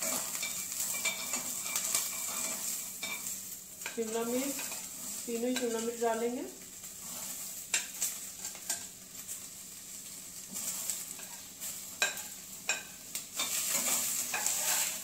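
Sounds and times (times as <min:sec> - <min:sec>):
vegetables sizzling in a pan: 0:00.0 - 0:15.0
metal spoon clicking on pan: 0:12.0 - 0:14.5.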